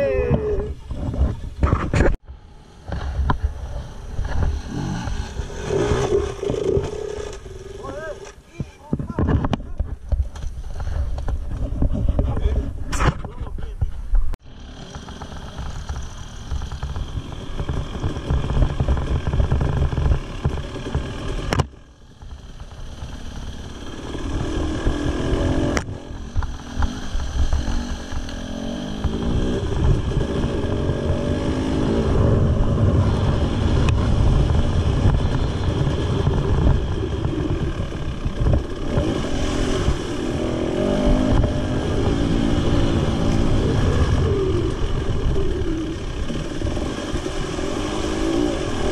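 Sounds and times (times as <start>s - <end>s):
motorcycle engine revving: 0.0s - 13.4s, 14.4s - 48.9s.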